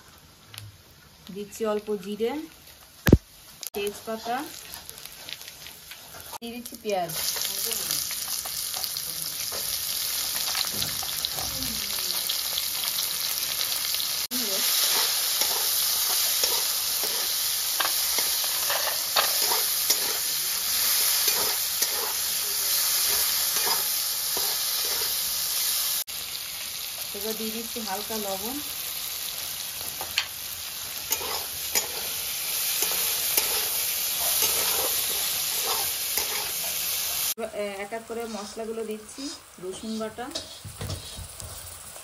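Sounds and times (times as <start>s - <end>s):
onion sizzling in oil: 0.0s - 42.0s
scraping against a pan: 38.2s - 41.6s.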